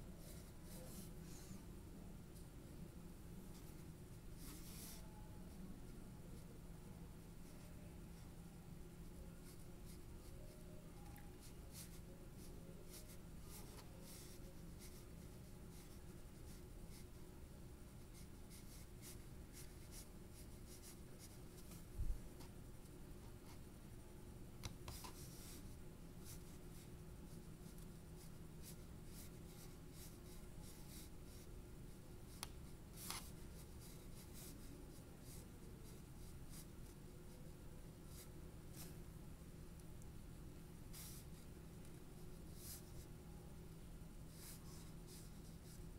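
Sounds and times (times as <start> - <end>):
paintbrush strokes on paper: 3.5 - 5.2, 11.4 - 17.2, 40.9 - 43.1, 44.3 - 45.9.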